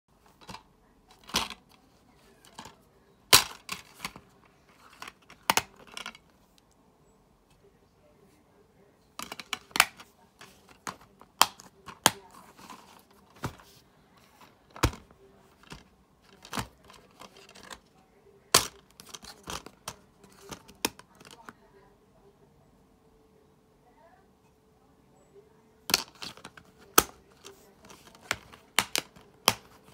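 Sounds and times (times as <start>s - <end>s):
plastic case clicks and snaps: 27.9s - 29.7s.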